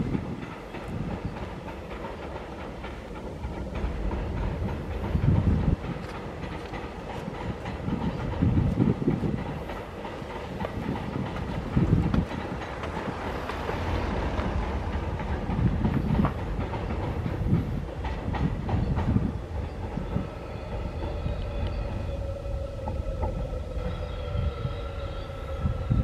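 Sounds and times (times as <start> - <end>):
train wheels knocking on rail joints: 0.0 - 24.8
train rumble: 0.0 - 26.0.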